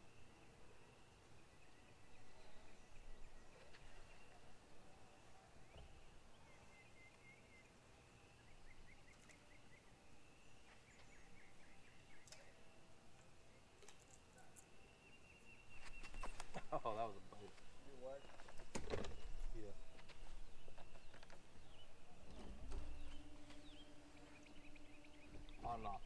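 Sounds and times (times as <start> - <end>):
distant bird chirps: 0.0 - 26.0
faint steady high tone: 22.5 - 26.0.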